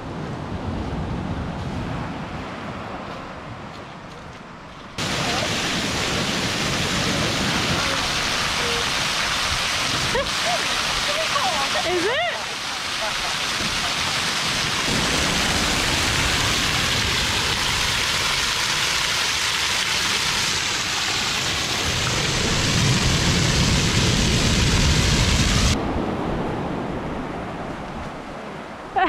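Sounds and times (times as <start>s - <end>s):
water rushing at shore: 4.8s - 29.0s.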